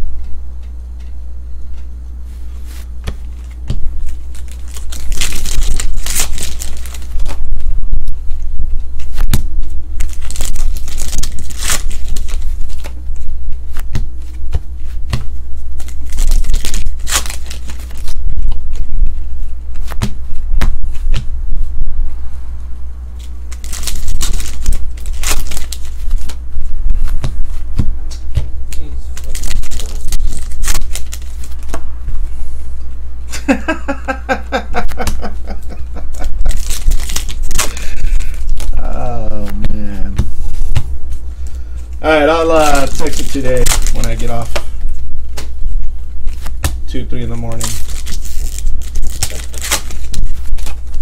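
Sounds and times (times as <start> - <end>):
steady low hum: 0.0 - 51.0
trading cards rustling and clicking: 2.7 - 7.5, 9.0 - 18.9, 23.2 - 31.8, 36.2 - 39.6, 42.5 - 44.7, 47.2 - 51.0.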